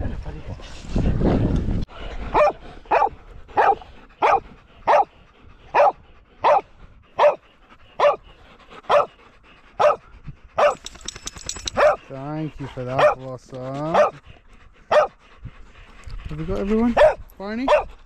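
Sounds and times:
dog barking: 2.3s - 5.1s, 5.7s - 7.4s, 8.0s - 8.2s, 8.9s - 9.2s, 9.8s - 10.0s, 10.6s - 10.8s, 11.7s - 12.1s, 12.9s - 13.2s, 13.9s - 14.2s, 14.9s - 15.2s, 17.0s - 17.9s.

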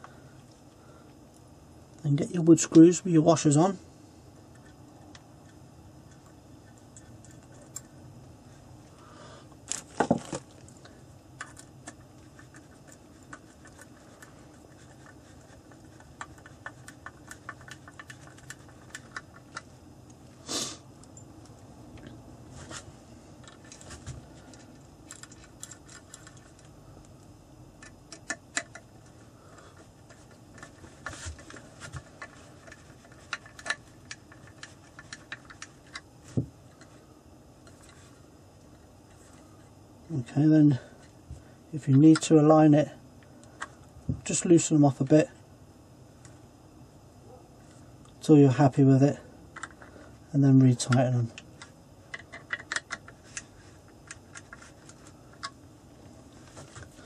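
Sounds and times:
metallic clicks and scrapes of screws: 24.5s - 26.7s.

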